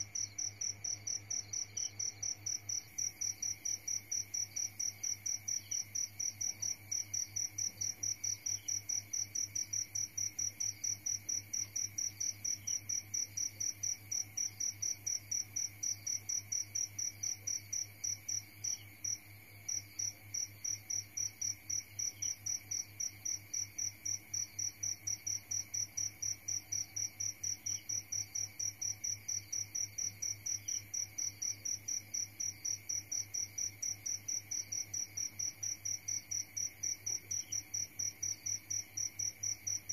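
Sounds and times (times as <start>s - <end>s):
cricket chirping: 0.0s - 39.9s.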